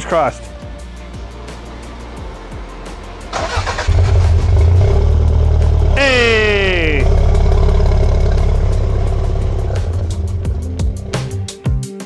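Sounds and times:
car starter cranking: 0:03.3 - 0:05.7, 0:06.9 - 0:11.0
car engine running: 0:03.4 - 0:11.4.

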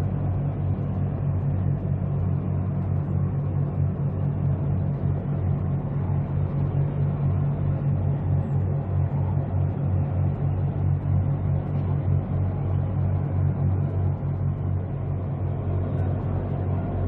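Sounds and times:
ship diesel engine throbbing: 0:03.9 - 0:17.0.

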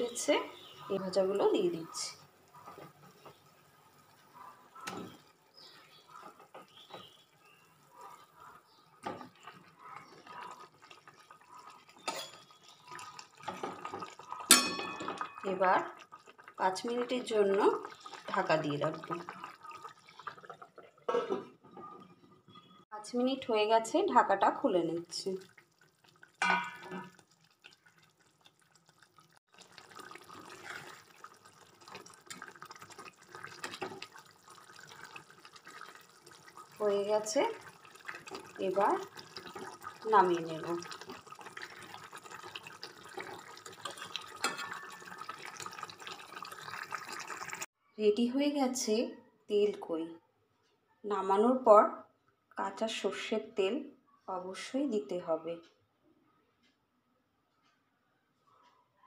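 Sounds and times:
gravy bubbling in a pan: 0:00.0 - 0:22.9, 0:24.4 - 0:47.8
spatula stirring: 0:25.4 - 0:36.8, 0:37.6 - 0:47.6.

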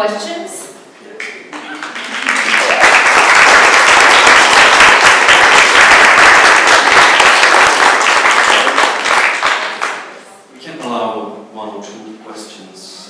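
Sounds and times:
audience applauding: 0:01.2 - 0:10.2.

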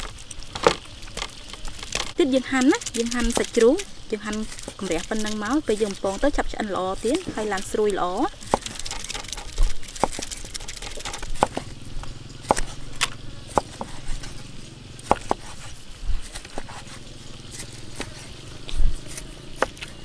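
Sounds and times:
cleaver knocking on chopping block: 0:15.1 - 0:15.5.

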